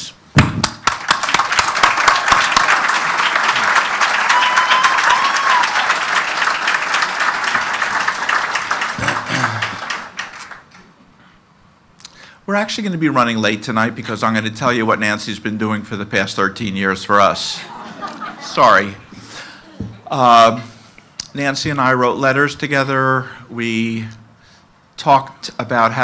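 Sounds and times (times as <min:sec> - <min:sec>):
audience applauding: 0:00.6 - 0:11.0.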